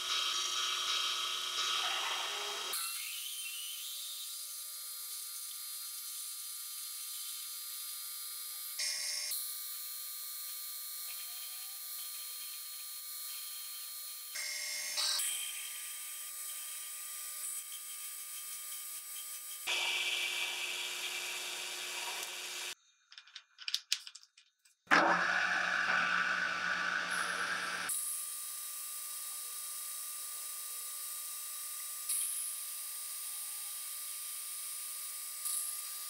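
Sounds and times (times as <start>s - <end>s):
machine hum: 24.9s - 27.9s
lathe tool hissing in cut: 25.1s - 28.0s.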